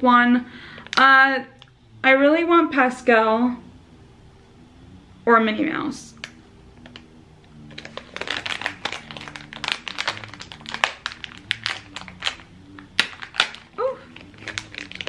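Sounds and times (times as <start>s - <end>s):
plastic packet crinkling: 7.7s - 15.0s.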